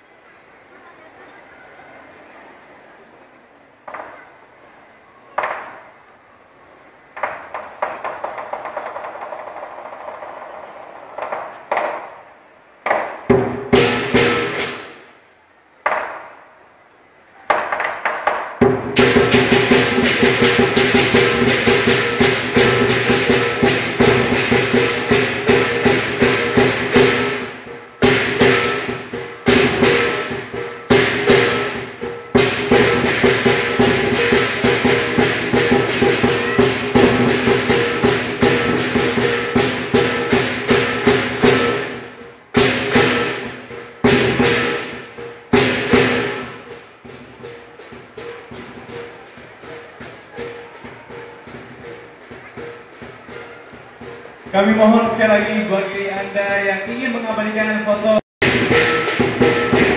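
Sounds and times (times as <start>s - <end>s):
drum beating: 7.1s - 16.4s, 17.5s - 59.9s
cymbals clashing: 13.2s - 15.4s, 18.6s - 59.9s
gong: 58.4s - 59.9s.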